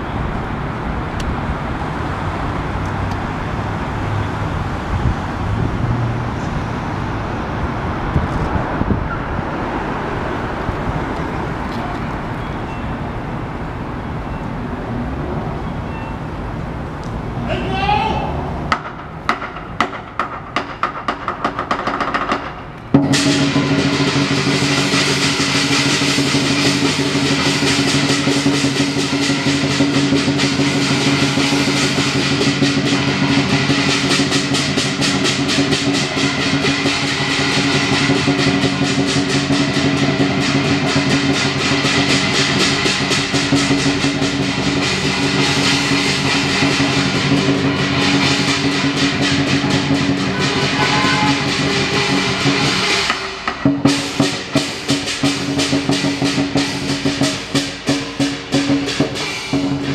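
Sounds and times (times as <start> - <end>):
drum beating: 17.5 - 59.9
cymbals clashing: 23.0 - 59.9
gong: 23.0 - 59.9.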